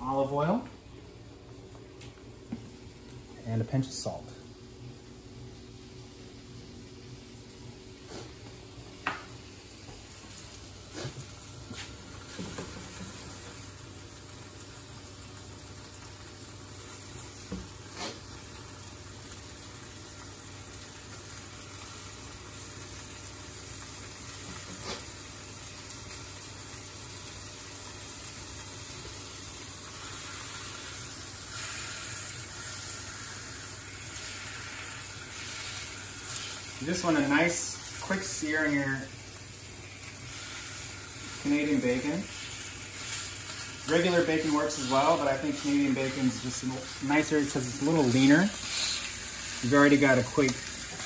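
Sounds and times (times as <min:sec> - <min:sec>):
meat sizzling in a frying pan: 0:05.6 - 0:51.0.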